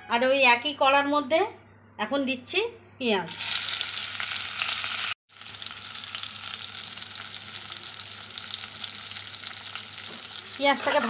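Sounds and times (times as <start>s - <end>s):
onions sizzling in oil: 3.3s - 11.0s.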